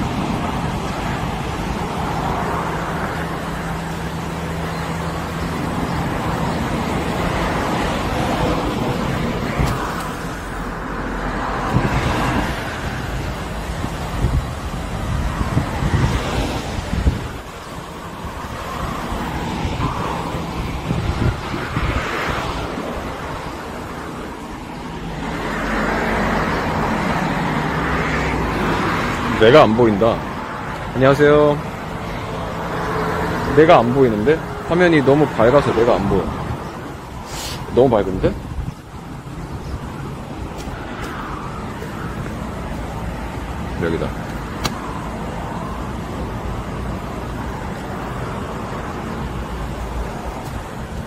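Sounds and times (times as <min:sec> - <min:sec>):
outdoor background noise: 0:00.0 - 0:51.0
road traffic: 0:00.0 - 0:51.0
wind on phone microphone: 0:11.5 - 0:24.0, 0:36.0 - 0:45.7
sharp click: 0:44.3 - 0:44.8.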